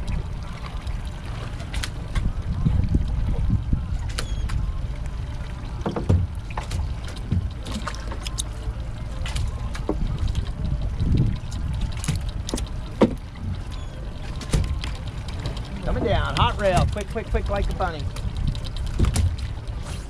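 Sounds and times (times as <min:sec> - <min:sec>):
steady low rumble: 0:00.0 - 0:20.0
water lapping at boat hull: 0:00.0 - 0:20.0
knocks and clicks of gear: 0:09.2 - 0:17.4, 0:18.1 - 0:19.8.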